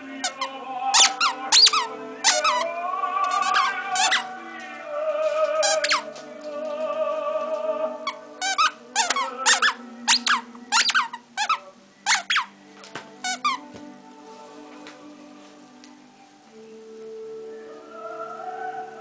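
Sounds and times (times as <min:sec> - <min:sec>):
opera singing with orchestra: 0:00.0 - 0:12.0, 0:17.2 - 0:19.0
squeaky toy squeaking: 0:00.2 - 0:04.3, 0:05.6 - 0:06.1, 0:08.0 - 0:12.5, 0:13.2 - 0:13.6.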